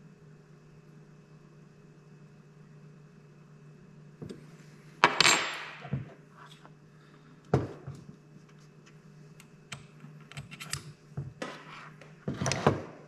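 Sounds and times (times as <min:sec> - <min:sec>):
part knocked down on table: 0:05.0 - 0:06.1.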